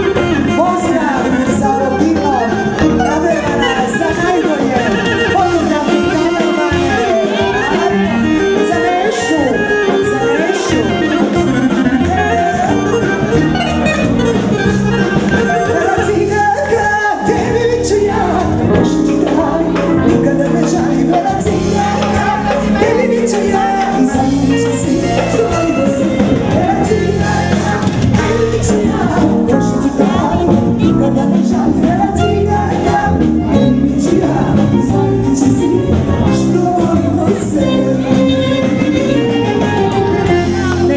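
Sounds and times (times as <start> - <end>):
drums: 0.0 - 40.9
electric keyboard: 0.0 - 40.9
woman singing through microphone: 15.3 - 40.9.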